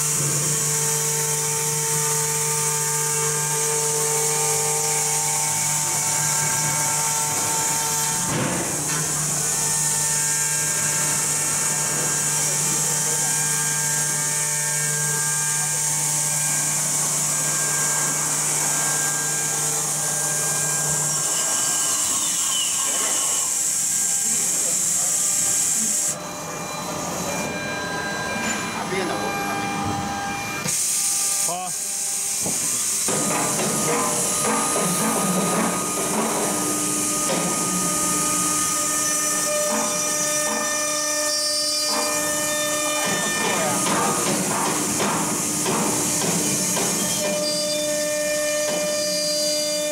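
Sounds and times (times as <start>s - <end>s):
milling machine spindle whining: 0.0s - 49.9s.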